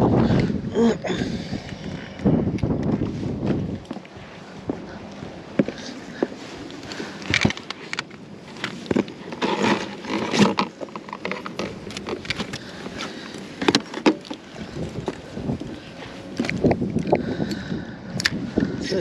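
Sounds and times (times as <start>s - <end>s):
knocks and clicks of gear: 7.2s - 15.7s.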